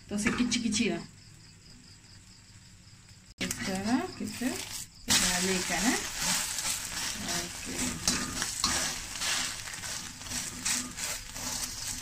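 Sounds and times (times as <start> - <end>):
egg sizzling in hot oil: 2.0 - 12.0
metal spatula scraping wok: 3.6 - 12.0.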